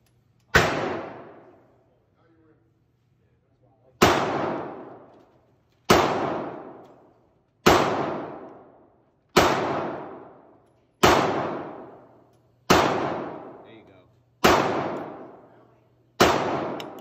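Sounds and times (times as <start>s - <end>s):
pistol shots echoing: 0.5s - 1.6s, 4.0s - 5.1s, 5.9s - 13.8s, 14.4s - 15.5s, 16.2s - 17.0s.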